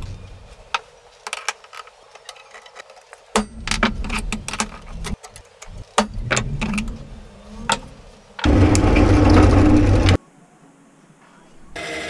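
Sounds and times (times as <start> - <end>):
handling rumble: 3.3 - 10.2
loud steady noise: 5.7 - 10.2.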